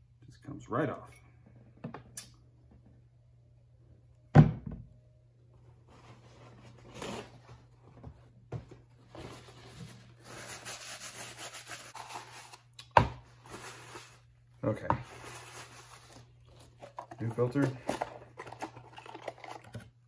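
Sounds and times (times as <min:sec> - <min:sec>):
paper towel wiping: 0:10.1 - 0:12.6.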